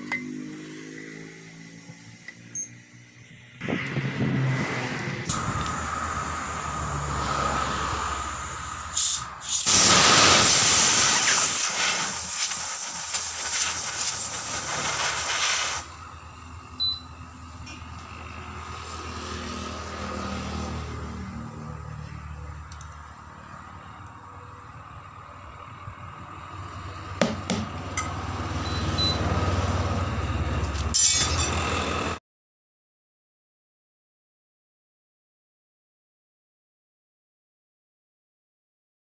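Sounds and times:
compressed air hissing into tyre: 1.3 - 16.2.

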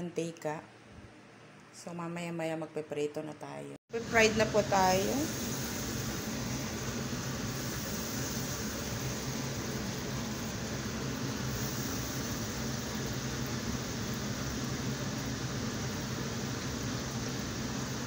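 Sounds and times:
hot oil sizzling: 3.9 - 18.0.

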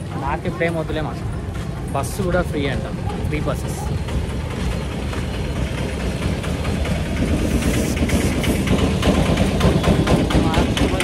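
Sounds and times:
engine idling with knocking rattle: 0.0 - 11.0.

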